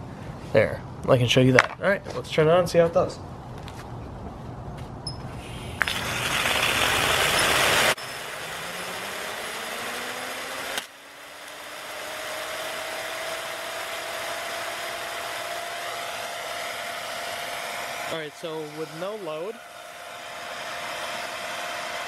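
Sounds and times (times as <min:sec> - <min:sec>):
turbine whine: 0:05.0 - 0:22.0
water spraying hiss: 0:05.4 - 0:08.6
water jet rushing: 0:05.8 - 0:10.6.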